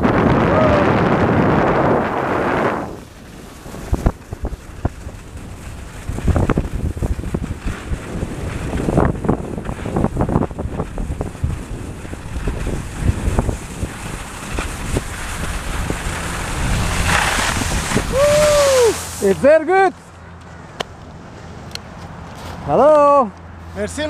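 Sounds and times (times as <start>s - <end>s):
wind buffeting microphone: 0.0s - 19.6s
skis scraping on snow: 1.3s - 20.0s, 22.3s - 22.7s.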